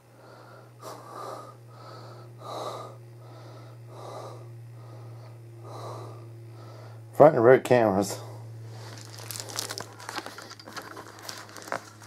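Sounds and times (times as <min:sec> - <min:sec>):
person breathing noisily: 0:00.0 - 0:07.1
steady low hum: 0:00.0 - 0:12.0.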